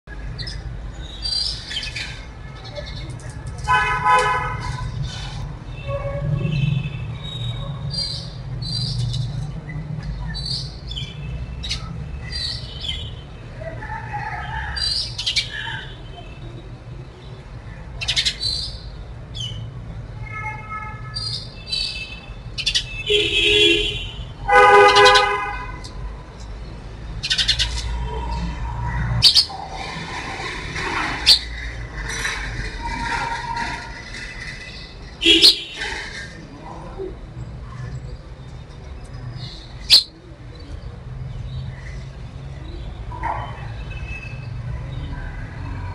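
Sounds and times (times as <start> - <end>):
low traffic rumble: 0.0 - 45.9
sparrows chirping: 0.1 - 3.4, 6.5 - 19.9, 21.1 - 29.8, 30.5 - 45.6
vehicle horn: 23.0 - 25.7.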